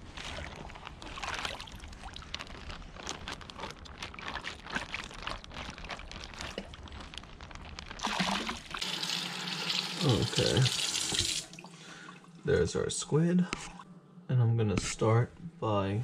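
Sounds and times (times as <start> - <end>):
water splashing and pouring: 0.0 - 12.2.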